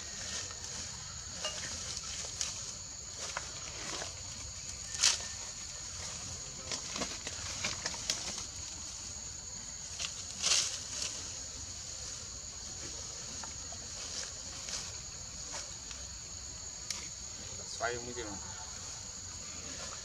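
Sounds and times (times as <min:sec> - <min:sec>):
insects chirring: 0:00.0 - 0:20.0
rustles on dry ground: 0:00.0 - 0:20.0.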